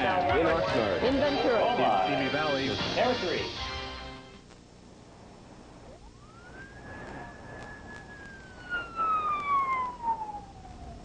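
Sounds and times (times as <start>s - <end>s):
police siren wailing: 6.0s - 11.0s.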